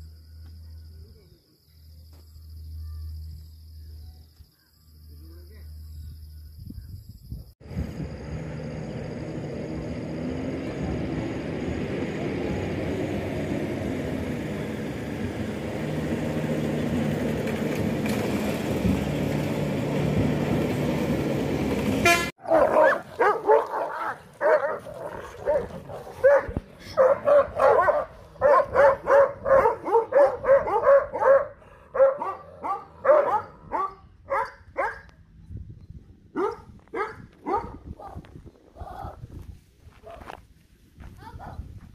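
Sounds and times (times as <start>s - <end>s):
dogs barking in a scuffle: 22.4s - 35.1s, 36.4s - 38.3s, 40.0s - 40.4s.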